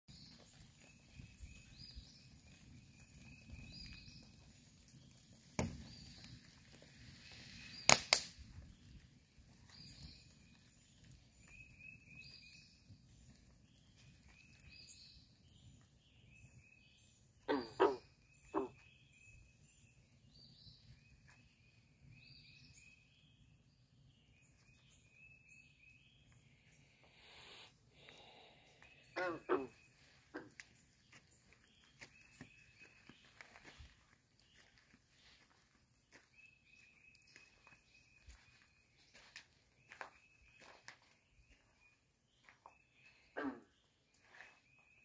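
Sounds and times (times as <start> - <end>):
birds singing: 0.1 - 45.0
lower pitched bird calls: 9.6 - 45.0.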